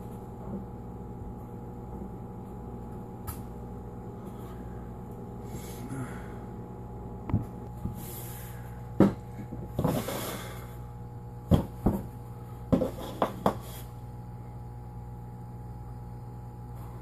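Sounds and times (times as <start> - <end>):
steady low hum: 0.0 - 17.0
dough thumping on counter: 9.0 - 10.1, 11.5 - 12.1.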